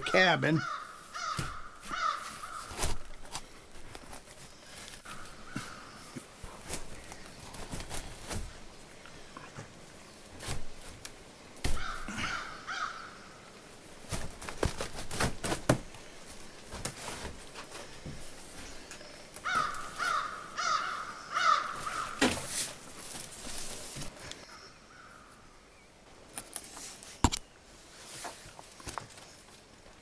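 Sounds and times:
harsh caw-like squawks: 0.1 - 2.8, 11.8 - 13.3, 19.4 - 22.3.

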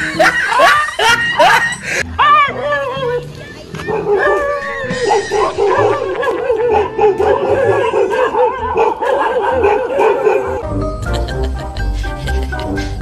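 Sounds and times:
dog barking: 3.8 - 10.6.

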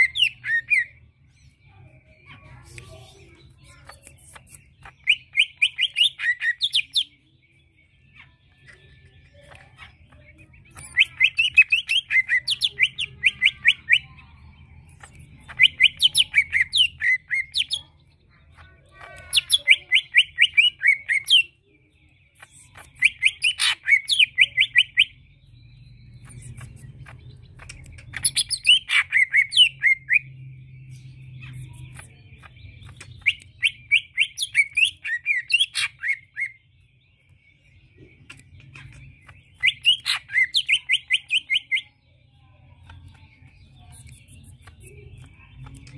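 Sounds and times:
bird singing chattering whistles: 3.6 - 7.1, 9.8 - 14.1, 22.3 - 25.2, 25.8 - 36.6, 37.6 - 41.9.

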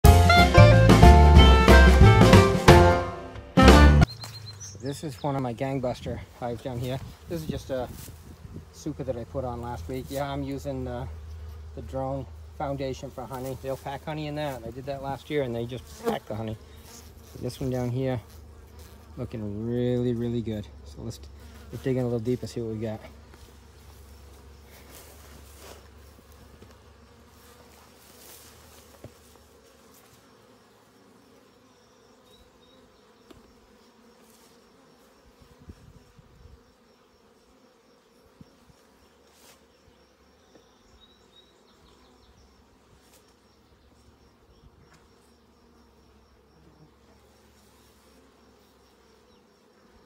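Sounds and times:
bees buzzing: 0.0 - 50.0.

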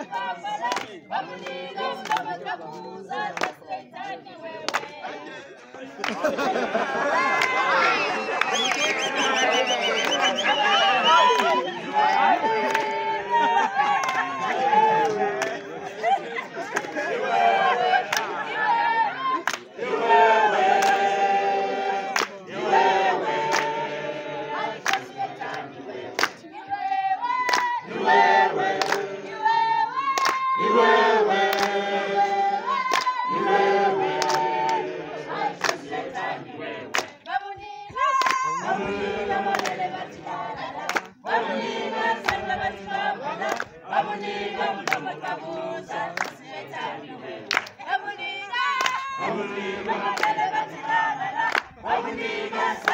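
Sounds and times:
hands clapping a beat: 0.0 - 6.5, 7.2 - 18.5, 19.4 - 19.8, 20.5 - 24.2, 24.8 - 52.9
crowd singing: 0.0 - 52.9.

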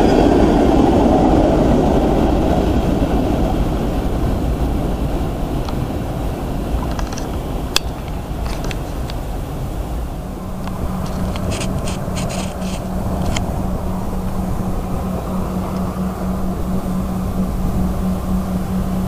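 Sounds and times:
freight train rumbling on rails: 0.0 - 19.0
steady low hum: 0.0 - 19.0
sharp clicks and scrapes: 6.8 - 9.2, 10.6 - 13.5.

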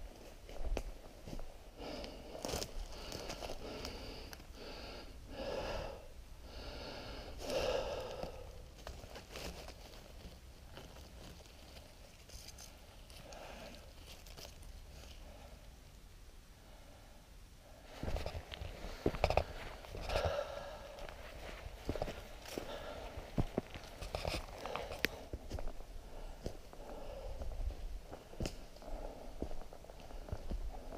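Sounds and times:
person breathing heavily: 1.3 - 9.6, 13.1 - 14.2, 16.6 - 30.9
dry leaves rustling: 8.2 - 15.2.

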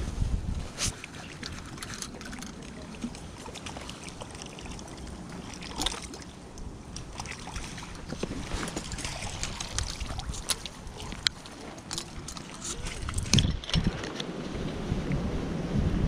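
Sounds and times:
wind rumbling on microphone: 0.0 - 16.0
handling clicks and rustles: 0.6 - 4.3, 8.0 - 14.4.

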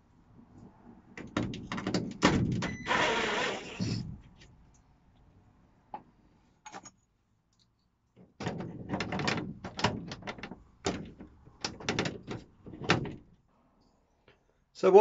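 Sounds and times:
metal rattling: 8.4 - 13.3.

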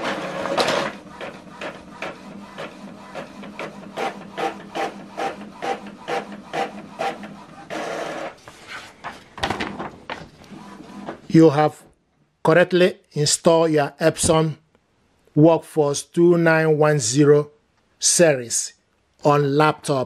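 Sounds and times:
inkjet printer printing: 0.0 - 8.4, 10.4 - 11.3.

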